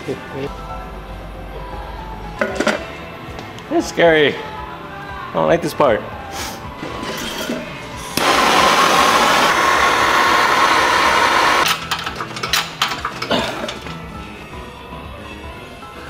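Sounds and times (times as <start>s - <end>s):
pneumatic tool buzzing hiss: 8.2s - 11.7s.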